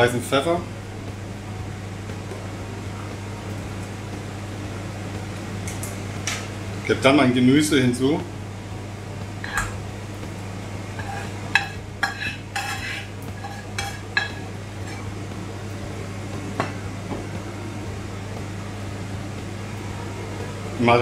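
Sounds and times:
steady low hum: 0.0s - 21.0s
spatula stirring food: 10.9s - 15.3s.

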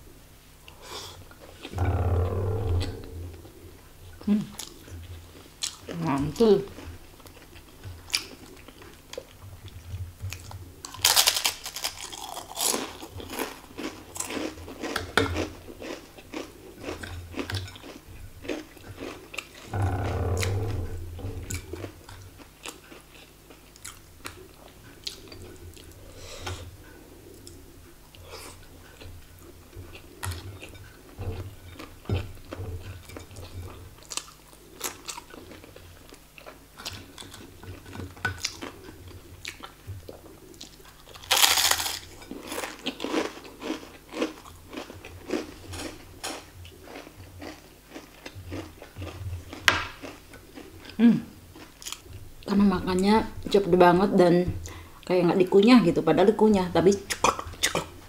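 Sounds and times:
crunchy biting and chewing: 10.4s - 24.4s, 38.4s - 51.0s.

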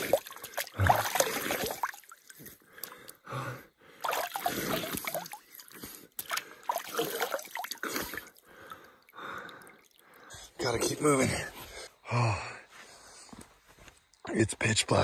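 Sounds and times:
water splashing and dripping: 0.0s - 3.2s, 4.0s - 10.5s
person gasping: 2.8s - 5.2s.

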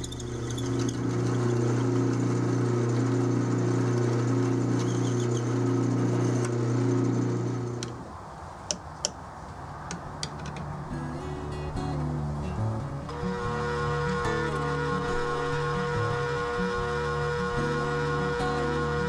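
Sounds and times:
drill cutting metal: 0.0s - 7.8s
metal lathe humming: 0.0s - 8.0s, 13.1s - 19.0s.

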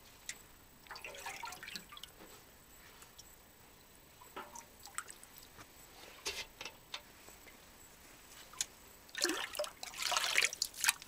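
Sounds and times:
water dripping and splashing: 0.3s - 2.2s, 4.3s - 5.4s, 8.5s - 11.0s.

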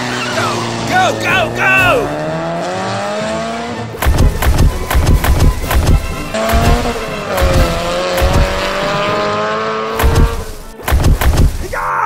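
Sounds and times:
car squealing whine: 0.0s - 10.8s
music with heavy thumping beat: 4.0s - 9.1s, 10.0s - 11.7s.

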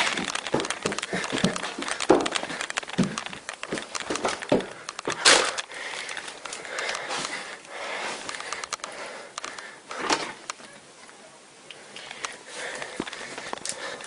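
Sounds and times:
objects knocking and clattering: 0.0s - 6.9s.

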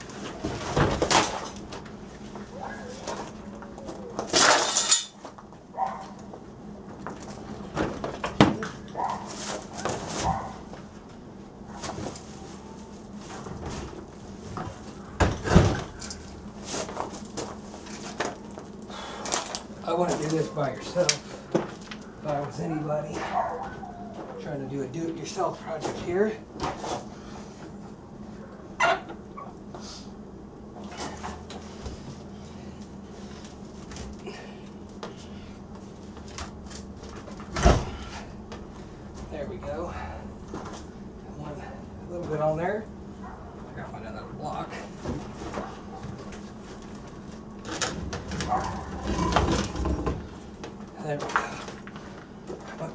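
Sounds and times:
faint steady hum: 0.0s - 52.9s
heavy objects knocking and clattering: 47.7s - 50.4s.

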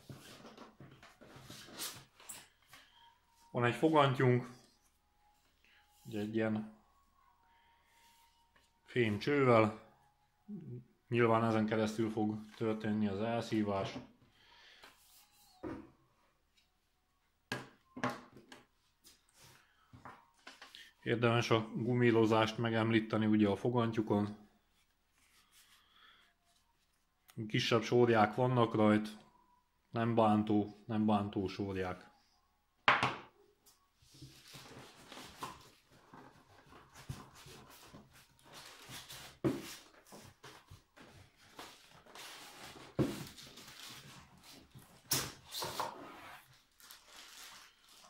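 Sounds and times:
soft handling and rustling: 0.0s - 7.1s, 24.2s - 27.4s, 33.6s - 45.8s.

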